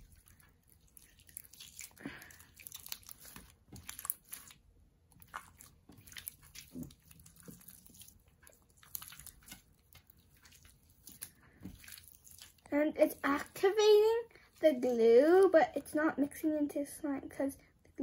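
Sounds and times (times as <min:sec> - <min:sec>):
slime crackling and popping: 0:00.0 - 0:13.6
slime squishing: 0:00.0 - 0:16.4.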